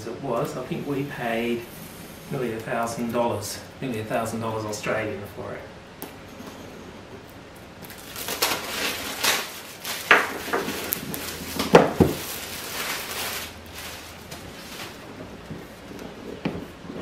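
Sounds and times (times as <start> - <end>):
packing wrap rustling: 7.8 - 17.0.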